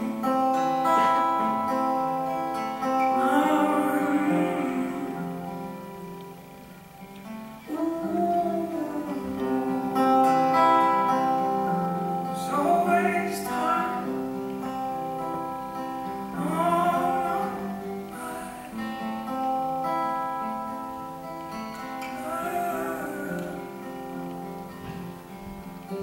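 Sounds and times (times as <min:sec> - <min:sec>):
acoustic guitar: 0:00.0 - 0:26.0
man singing long held notes: 0:03.0 - 0:05.9, 0:07.7 - 0:10.3, 0:12.3 - 0:14.4, 0:16.3 - 0:19.1, 0:22.0 - 0:24.2.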